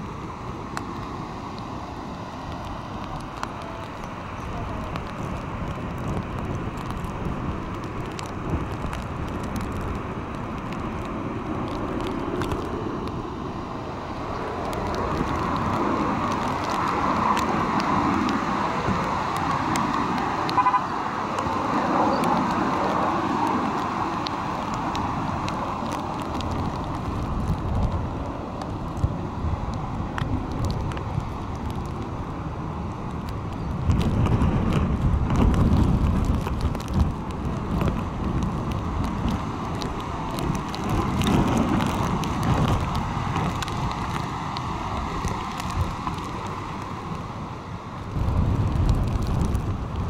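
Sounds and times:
wind: 0.0s - 50.0s
short horn-like beep: 20.6s - 20.9s.

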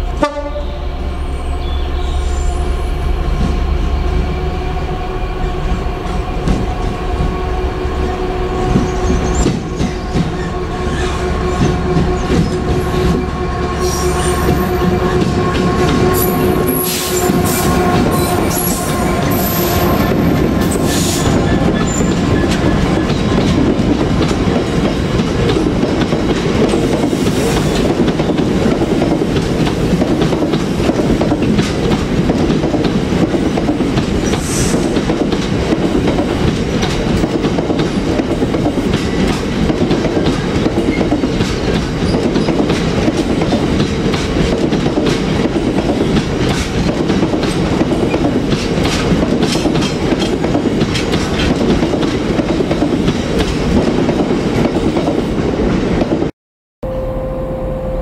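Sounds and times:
freight train rumbling past: 0.0s - 58.0s
wheels clacking over rail joints: 17.2s - 55.3s.

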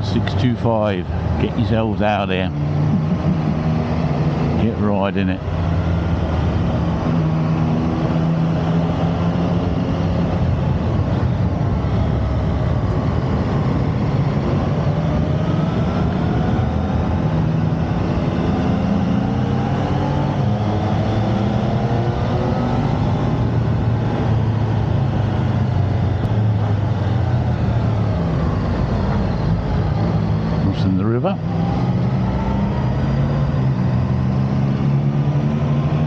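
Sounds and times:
wind noise: 5.4s - 30.7s.

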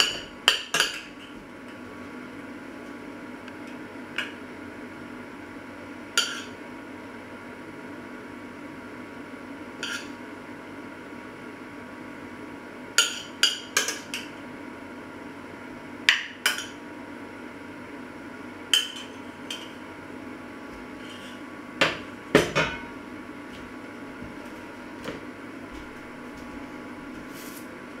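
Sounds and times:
steady low hum: 0.0s - 28.0s
metal spoon clinking on dishes: 18.7s - 19.7s.

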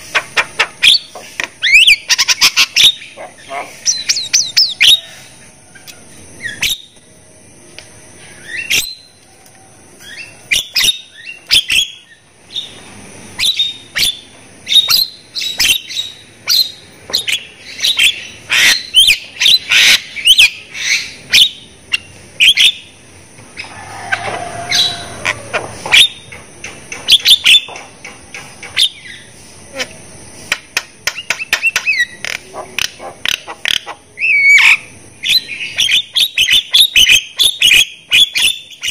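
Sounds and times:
myna chattering and whistling: 0.0s - 7.0s, 31.0s - 38.9s.

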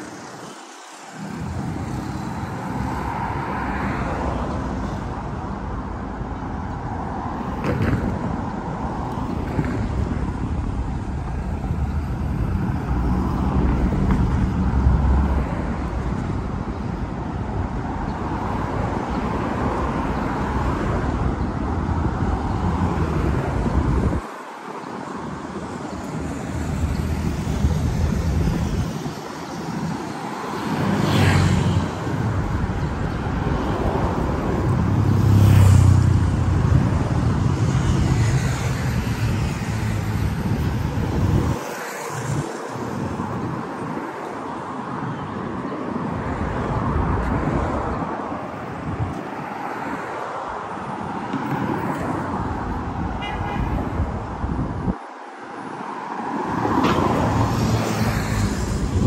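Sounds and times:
cars passing: 0.0s - 59.0s.

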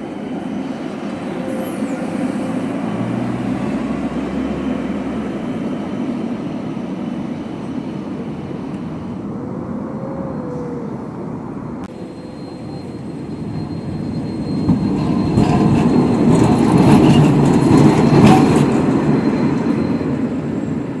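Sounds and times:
tram wheels on rails: 0.0s - 9.4s, 10.0s - 21.0s
wheels clattering over track joints: 14.2s - 20.1s.

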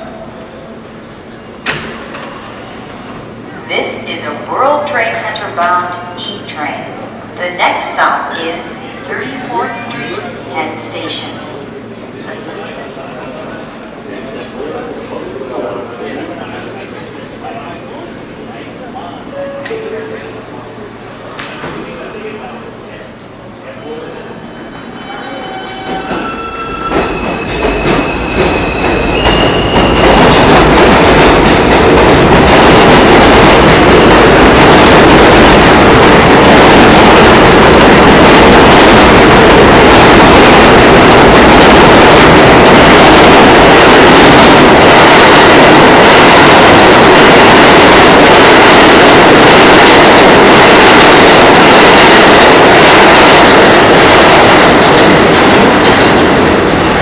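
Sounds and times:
subway train rumble: 0.0s - 57.0s.

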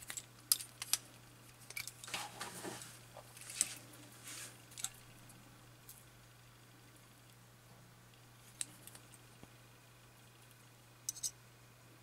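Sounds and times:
small metallic clicks and scrapes: 0.0s - 3.8s, 10.4s - 11.4s.

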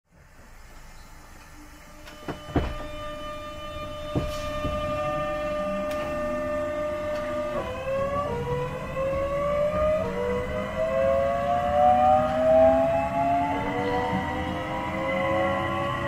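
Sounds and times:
electric train motor whine: 0.3s - 16.0s
rising inverter tones: 1.6s - 16.0s
knocks: 2.2s - 2.9s, 4.1s - 5.3s.

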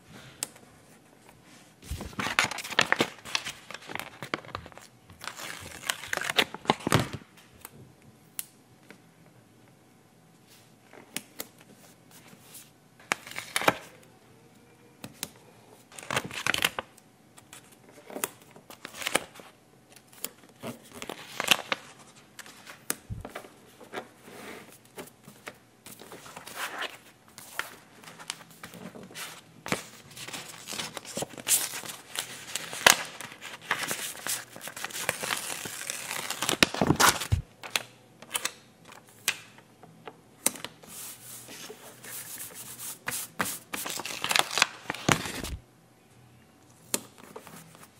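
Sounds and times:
paper stickers rustling and peeling: 1.8s - 7.1s, 25.3s - 39.4s, 40.5s - 45.6s.

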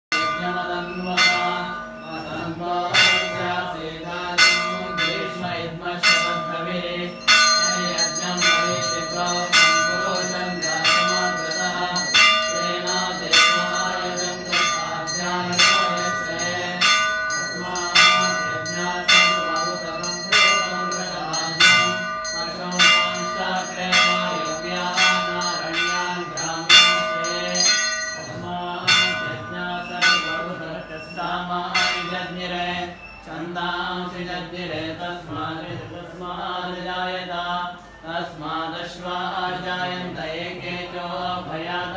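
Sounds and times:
temple bells ringing: 0.1s - 33.1s
bright high bell: 0.1s - 33.3s.

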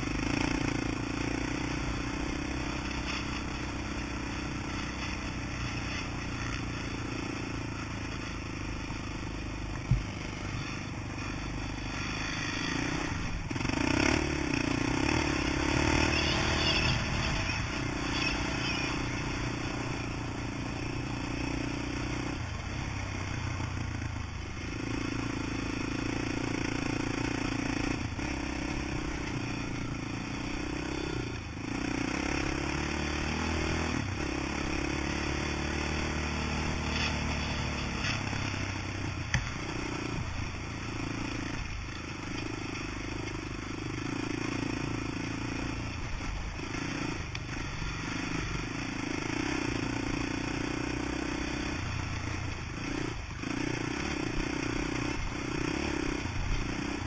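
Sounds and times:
quad engine running under throttle: 0.0s - 57.0s
clatter and scraping: 36.8s - 38.6s.

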